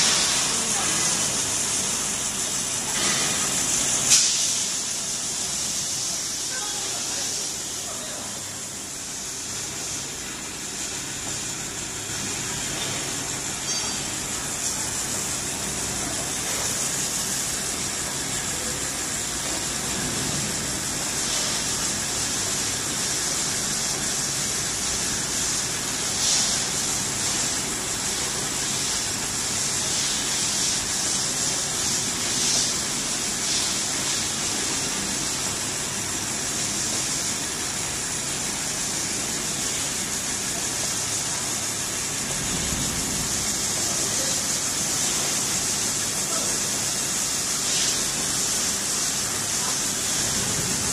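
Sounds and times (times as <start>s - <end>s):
machine high hiss: 0.0s - 50.9s.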